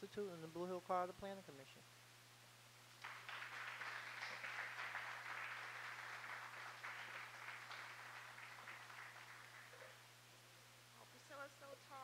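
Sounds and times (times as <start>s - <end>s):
small audience applauding: 3.0s - 10.0s.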